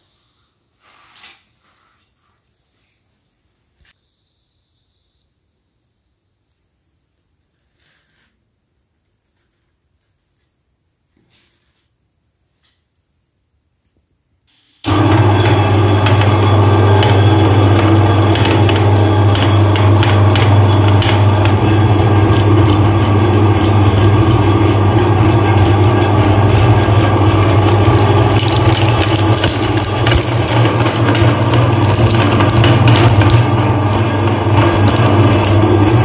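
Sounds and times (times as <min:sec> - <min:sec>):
meat grinder motor humming: 0:14.9 - 0:36.0.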